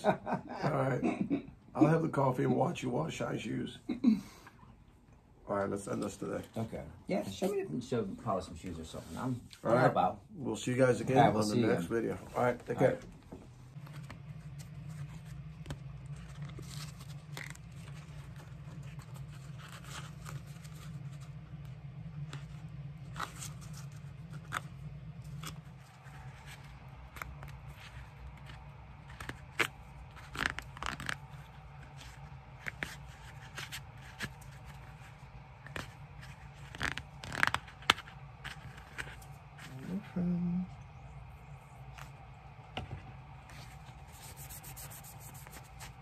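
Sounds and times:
low hum: 10.8 - 46.0.

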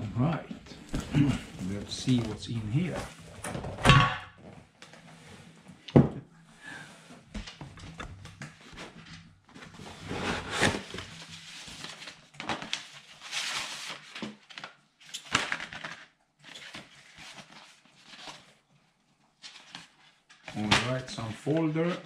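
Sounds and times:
cardboard and paper rustling: 0.8 - 3.3, 7.4 - 22.0.

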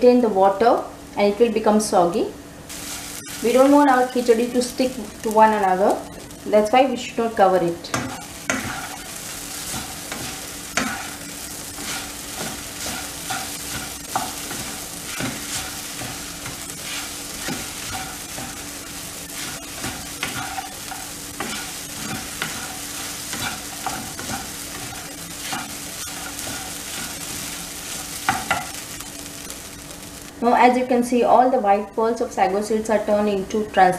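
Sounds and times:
steady low hum: 0.0 - 32.6
food sizzling: 2.6 - 31.1
wooden spatula scraping wok: 7.9 - 29.0.

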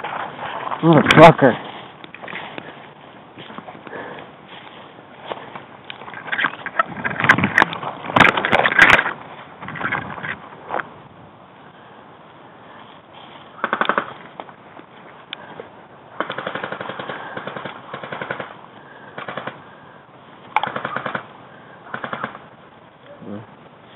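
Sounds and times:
airsoft guns firing full auto: 13.6 - 14.2, 16.2 - 19.6, 20.6 - 21.3, 21.9 - 22.5.

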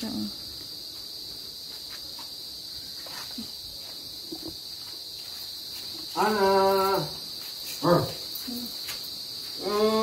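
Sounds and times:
high-pitched insect chorus: 0.0 - 10.0.

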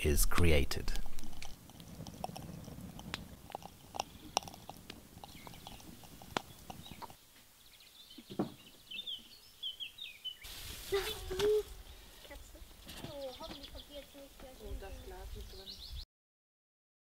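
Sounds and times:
wood embers crackling and popping: 0.1 - 7.5, 10.4 - 14.7
small birds chirping: 1.0 - 16.0.

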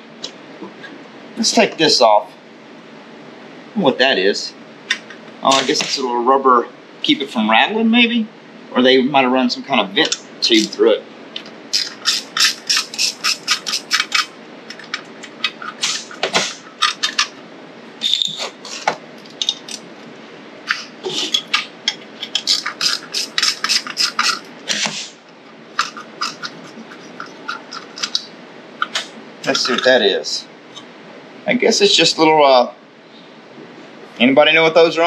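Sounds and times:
ratchet wrench clicking: 11.8 - 14.3.

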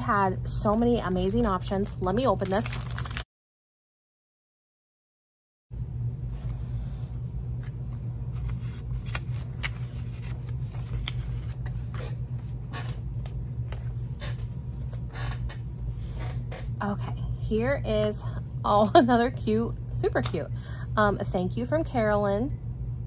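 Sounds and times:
steady low hum: 0.0 - 3.2, 5.7 - 23.0
paper rustling and clicks: 8.4 - 12.1.

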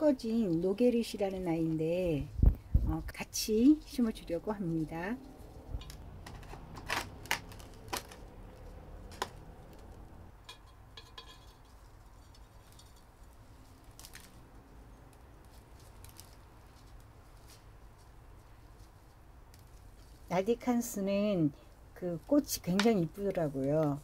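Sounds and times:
faint rustling: 11.5 - 20.4.

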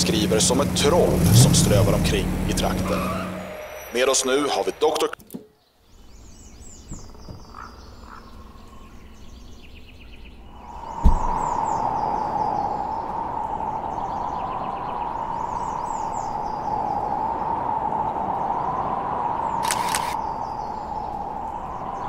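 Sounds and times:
birds chirping: 0.0 - 22.0
loud steady rushing noise: 0.9 - 5.2
heavy thump: 11.0 - 11.5.

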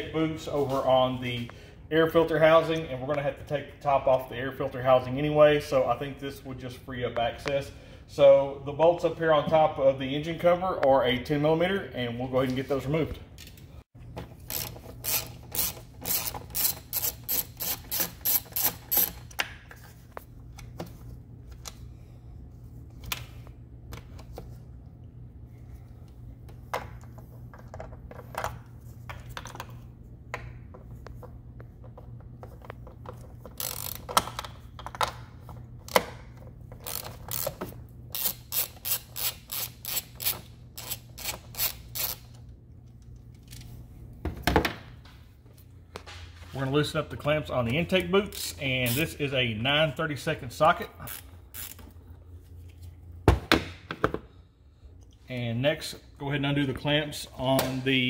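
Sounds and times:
steady low hum: 0.0 - 58.0
hand ratchet clicking: 14.4 - 19.3, 33.5 - 34.4, 36.8 - 42.4, 51.0 - 51.8.

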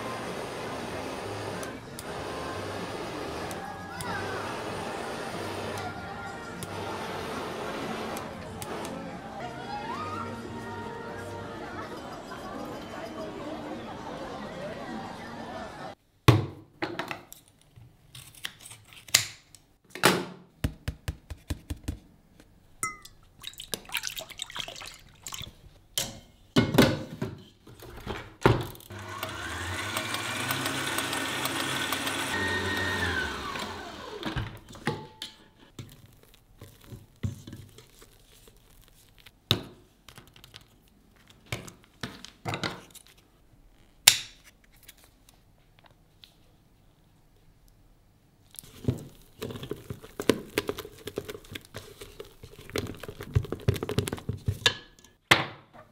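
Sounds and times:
electric stand mixer whisking: 0.0 - 9.1, 28.9 - 34.4
kitchen items clicking and knocking: 48.7 - 55.9.

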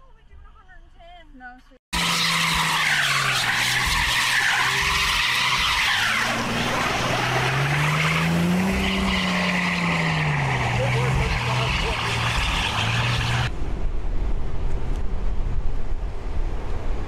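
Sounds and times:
car engine revving: 1.9 - 13.5
wheels spinning in snow: 2.0 - 13.5.

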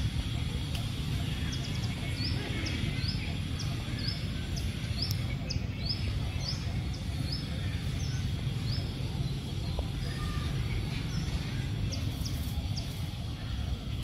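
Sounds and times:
bird chirping: 0.0 - 14.0.

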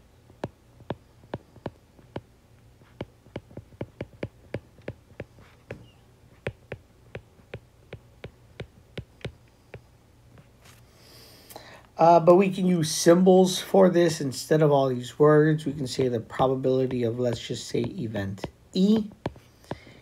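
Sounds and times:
stylus tapping on glass screen: 0.4 - 2.3, 3.0 - 9.9.

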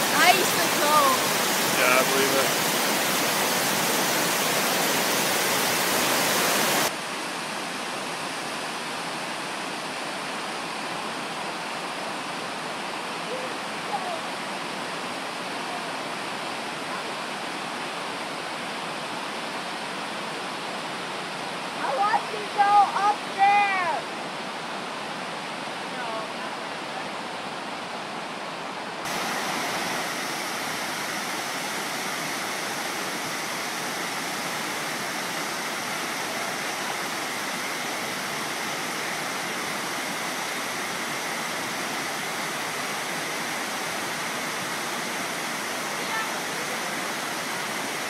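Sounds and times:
waterfall rushing over rock: 0.0 - 48.0.

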